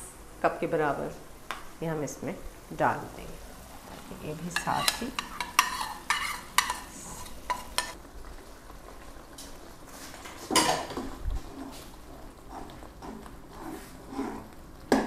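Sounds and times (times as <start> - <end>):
light sizzle: 0.0 - 15.0
spoon stirring in pot: 4.4 - 8.0, 10.4 - 15.0.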